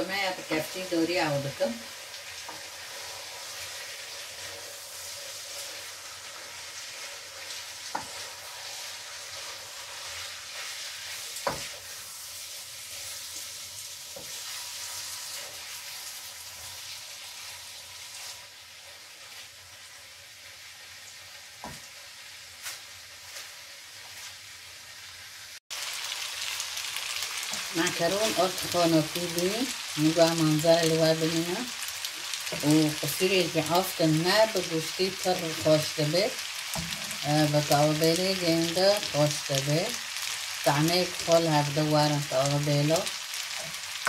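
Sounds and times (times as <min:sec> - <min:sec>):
food sizzling in oil: 0:00.0 - 0:44.0.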